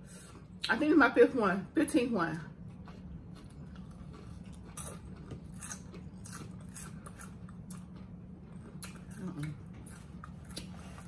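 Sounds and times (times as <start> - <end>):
chips being chewed: 2.7 - 11.0.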